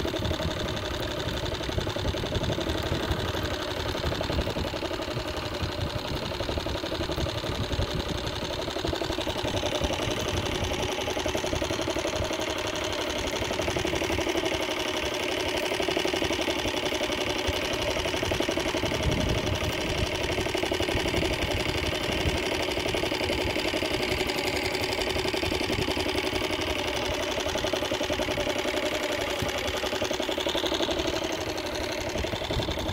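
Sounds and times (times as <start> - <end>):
small boat motor running: 0.0 - 32.9.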